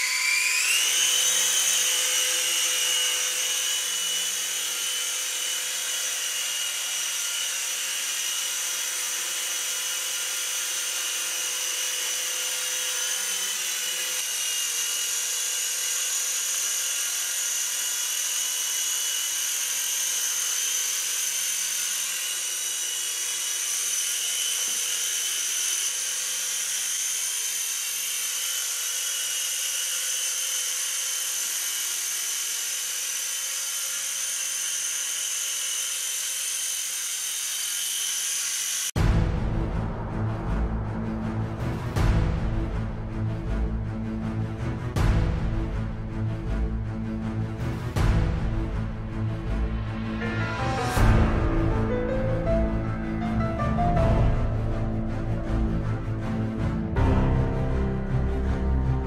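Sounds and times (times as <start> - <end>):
rc helicopter rotors whining: 0.0 - 39.0.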